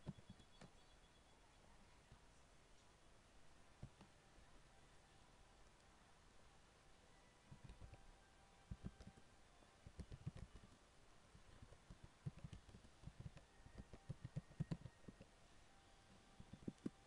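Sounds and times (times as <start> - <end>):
typing on computer keyboard: 7.5 - 8.0, 8.7 - 9.3, 9.9 - 10.8, 11.5 - 15.3, 16.4 - 17.0.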